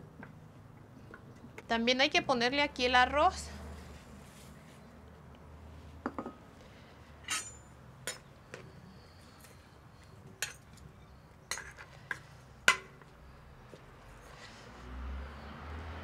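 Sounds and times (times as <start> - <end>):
metal spoon clinking in clay pot: 10.4 - 11.8.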